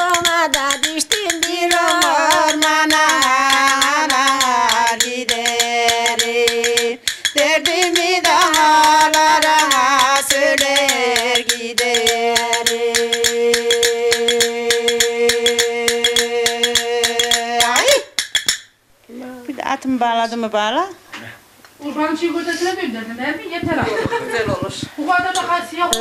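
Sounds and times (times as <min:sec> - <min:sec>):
woman singing folk song: 0:00.0 - 0:17.9
tapping on metal saucer: 0:10.2 - 0:18.7, 0:23.6 - 0:26.0.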